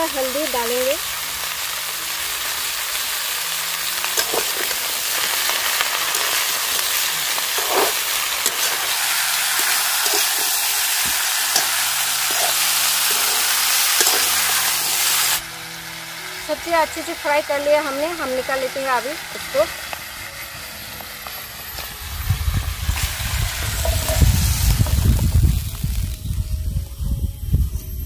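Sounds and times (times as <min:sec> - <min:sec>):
vegetables sizzling in hot oil: 0:00.0 - 0:26.7
stirring knocks and scrapes: 0:07.4 - 0:14.5.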